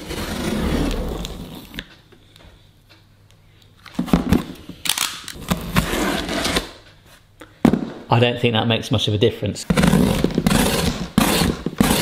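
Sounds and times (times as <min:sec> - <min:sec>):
knife slicing packing tape: 0:09.8 - 0:12.0.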